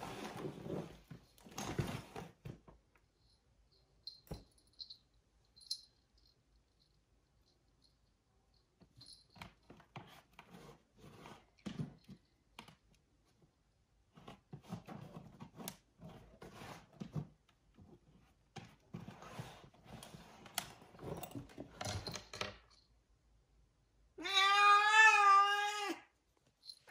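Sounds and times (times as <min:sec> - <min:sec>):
cat meowing: 0:24.2 - 0:26.1.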